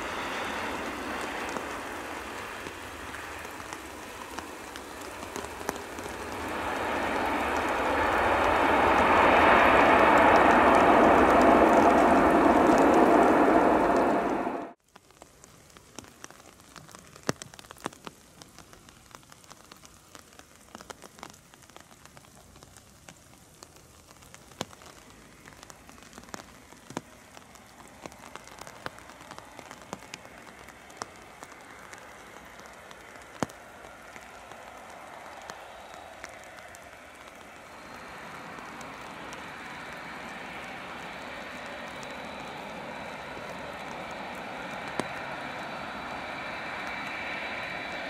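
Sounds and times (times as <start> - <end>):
faint jet engine rushing: 0.0 - 14.8, 24.2 - 48.0
loud noise: 0.0 - 14.8, 31.2 - 48.0
rain hiss: 0.0 - 48.0
raindrop ticks: 0.0 - 48.0.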